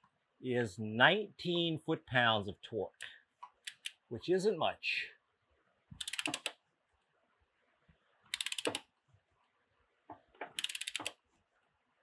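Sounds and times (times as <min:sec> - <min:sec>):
torque wrench ratchet clicking: 0:08.3 - 0:08.8, 0:10.6 - 0:11.1.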